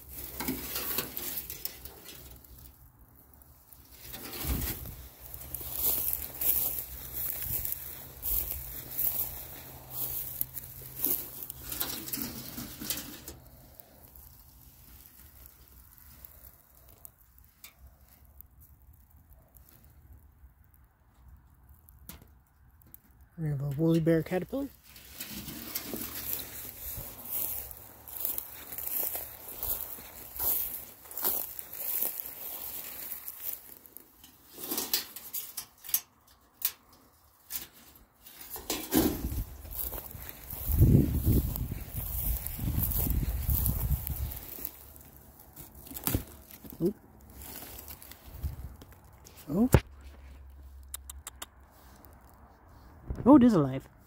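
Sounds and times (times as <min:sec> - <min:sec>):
metal roofing sheet crackling: 0:00.0 - 0:16.2, 0:23.6 - 0:48.7
rustling through dry grass: 0:00.0 - 0:21.7, 0:23.7 - 0:54.0
metal sheet clicking and scraping: 0:11.6 - 0:13.4, 0:34.5 - 0:37.8.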